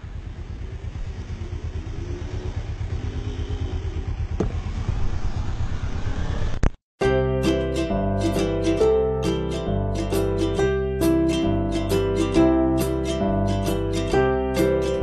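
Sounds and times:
vehicle engine rumbling: 0:00.0 - 0:06.8.

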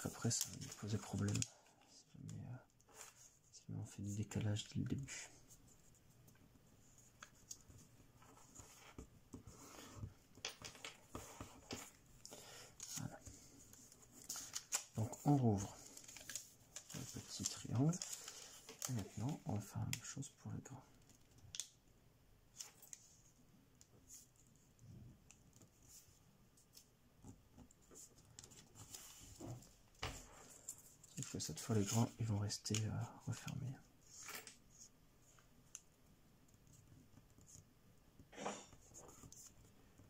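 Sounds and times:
paper rustling and crackling: 0:00.0 - 0:01.8, 0:09.7 - 0:19.9.

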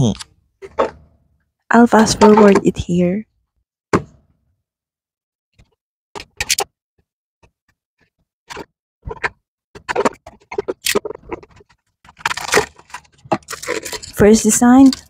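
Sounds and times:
cardboard box and plastic handled: 0:08.5 - 0:15.0.

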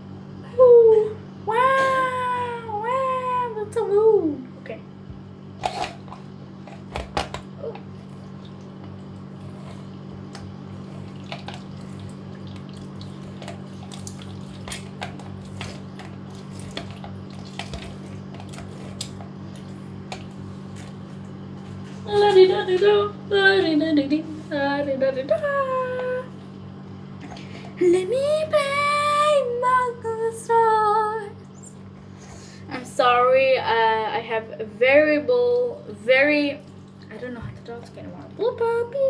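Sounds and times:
steady low hum: 0:00.0 - 0:39.0
girl's voice: 0:00.5 - 0:04.9, 0:22.1 - 0:26.3, 0:27.8 - 0:31.4, 0:32.7 - 0:39.0.

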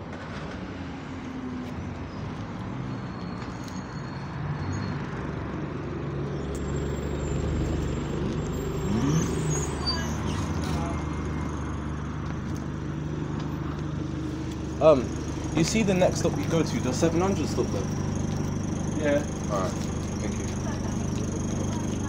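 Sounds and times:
bus engine idling: 0:05.1 - 0:22.0.

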